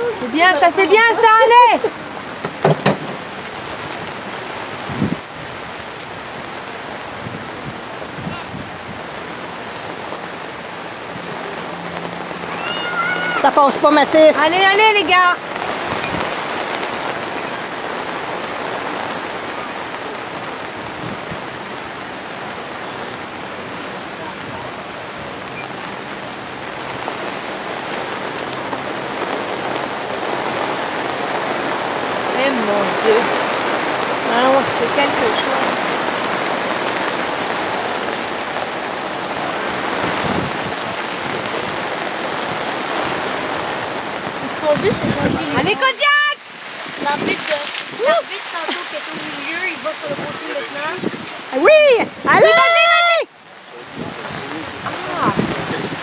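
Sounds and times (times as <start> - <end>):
rain falling: 0.0 - 56.0
dull thump: 2.4 - 3.2.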